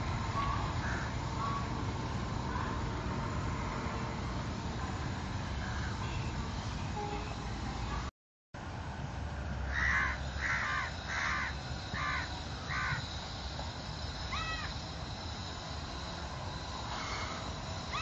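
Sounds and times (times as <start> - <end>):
crow cawing: 0.8 - 1.7, 5.6 - 6.0, 9.7 - 13.1, 14.3 - 14.8, 17.0 - 18.0.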